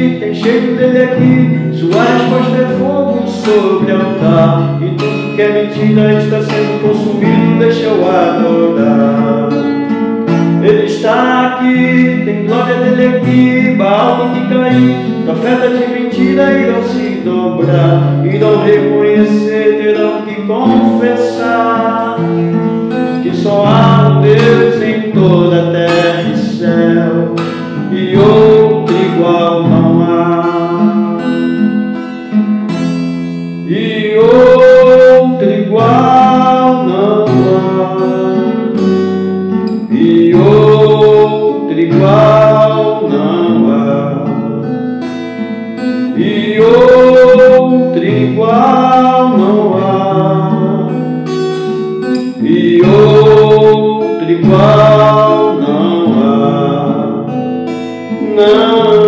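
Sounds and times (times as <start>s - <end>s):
man singing worship song: 0.0s - 9.8s, 10.6s - 31.4s, 33.6s - 38.6s, 39.8s - 44.4s, 46.1s - 51.0s, 52.3s - 57.4s, 58.2s - 59.0s
strummed acoustic guitar: 0.0s - 59.0s.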